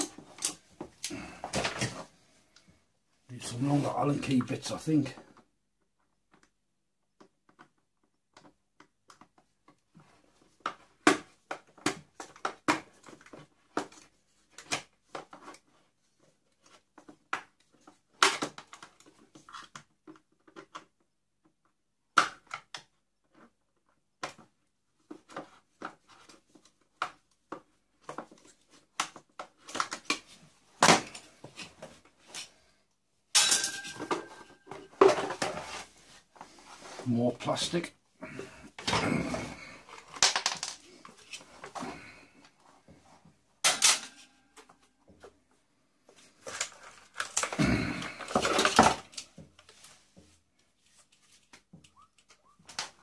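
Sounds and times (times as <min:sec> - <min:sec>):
plastic crackling and scraping: 0:46.1 - 0:53.0.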